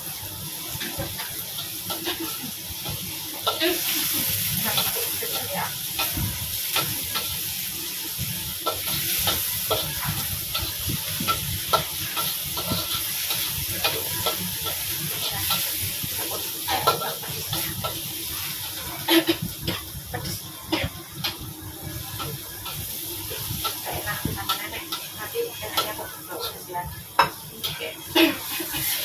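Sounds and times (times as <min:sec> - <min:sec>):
food sizzling in oil: 0:00.0 - 0:29.0
metal spatula scraping wok: 0:00.7 - 0:20.5.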